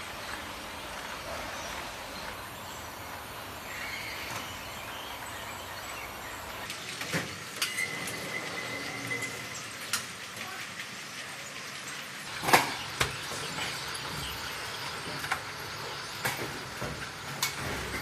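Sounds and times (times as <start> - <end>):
machinery and conveyor noise: 0.0 - 18.0.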